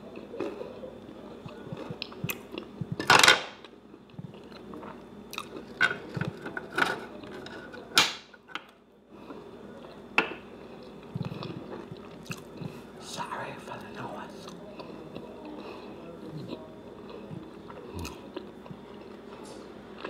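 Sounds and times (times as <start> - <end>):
person chewing food: 0.0 - 6.5, 9.1 - 13.0, 13.8 - 20.0.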